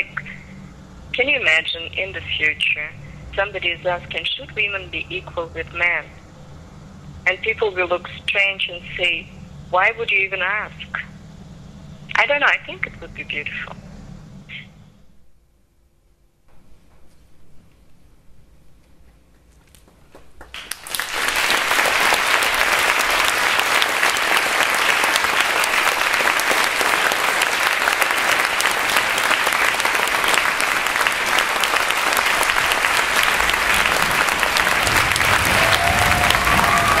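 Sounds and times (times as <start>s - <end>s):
audience applauding: 20.1s - 37.0s.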